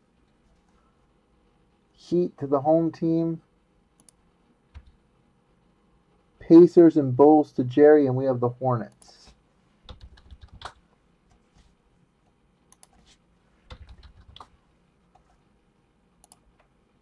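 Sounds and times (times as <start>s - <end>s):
typing on computer keyboard: 9.9s - 10.8s, 13.7s - 15.3s.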